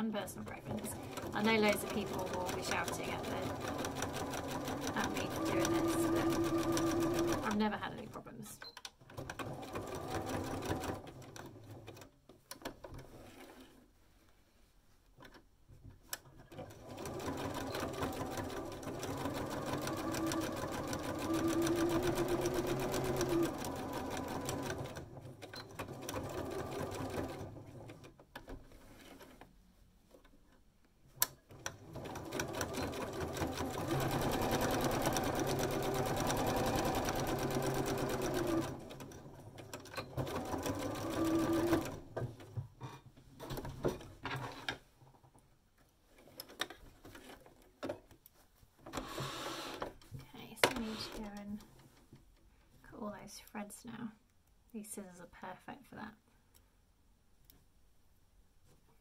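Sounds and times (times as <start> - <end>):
sewing machine stitching: 0.6 - 8.0, 8.6 - 13.8, 16.3 - 29.4, 31.2 - 42.4, 48.9 - 50.0, 50.7 - 51.7.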